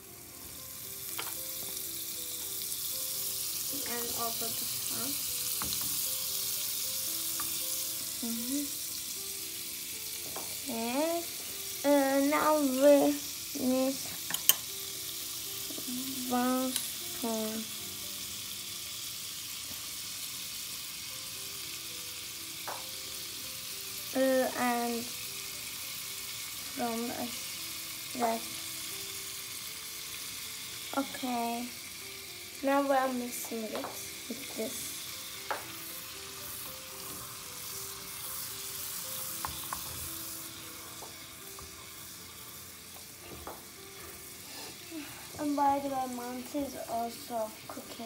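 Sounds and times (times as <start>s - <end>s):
butter sizzling in saucepan: 0.0s - 48.0s
spoon clicking against pan: 14.2s - 14.7s.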